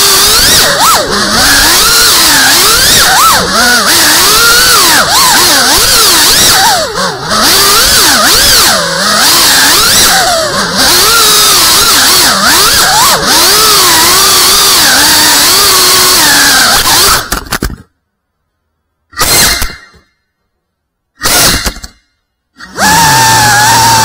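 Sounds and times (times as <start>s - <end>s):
quadcopter propellers whining: 0.0s - 17.4s, 22.6s - 24.0s.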